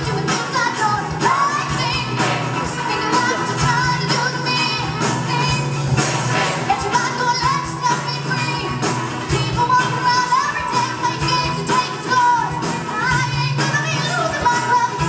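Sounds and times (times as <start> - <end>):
woman singing into microphone: 0.0 - 5.9, 6.6 - 15.0
band and orchestra playing: 0.0 - 15.0.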